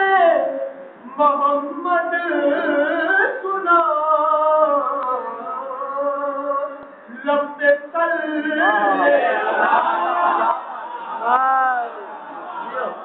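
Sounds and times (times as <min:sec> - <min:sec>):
singer breathing: 0:06.8 - 0:07.2.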